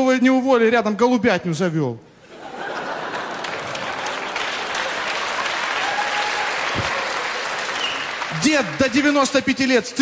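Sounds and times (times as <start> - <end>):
large audience applauding: 2.7 - 10.0.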